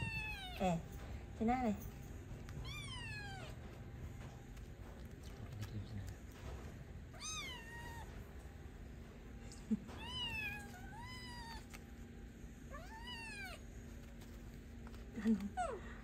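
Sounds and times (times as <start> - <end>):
kitten meowing: 2.6 - 3.5, 7.2 - 8.1, 10.0 - 11.8, 12.7 - 13.6.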